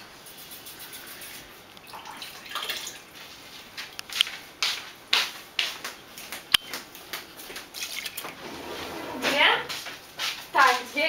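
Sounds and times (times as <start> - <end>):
water pouring: 1.8 - 3.1.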